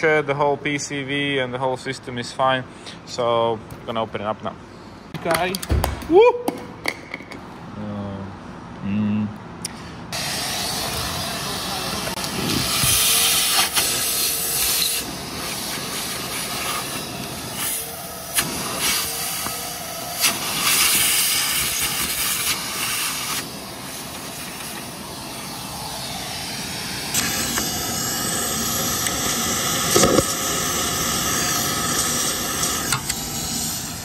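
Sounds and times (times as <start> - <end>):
vacuum cleaner hissing: 10.2 - 34.0.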